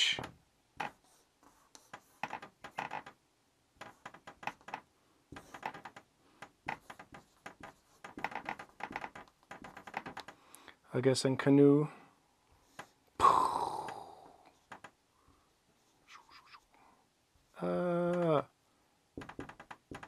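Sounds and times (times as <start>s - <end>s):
marker squeaking on whiteboard: 0.8s - 3.2s, 3.8s - 6.0s, 6.6s - 10.3s, 15.8s - 16.7s.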